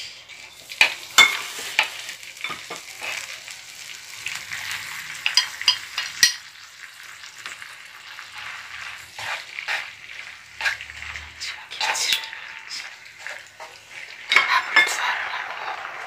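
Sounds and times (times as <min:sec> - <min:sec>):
food sizzling in frying pan: 0:00.0 - 0:16.0
wooden spatula scraping pan: 0:08.3 - 0:16.0.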